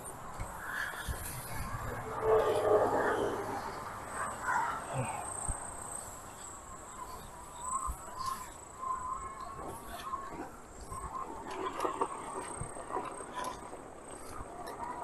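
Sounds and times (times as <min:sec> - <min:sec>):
insects trilling: 0:00.0 - 0:15.0
wavering lower tone: 0:01.5 - 0:04.4.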